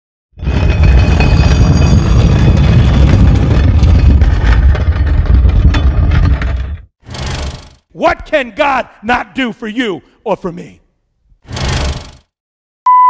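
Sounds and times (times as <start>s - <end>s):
deep rumbling and grinding: 0.4s - 7.7s.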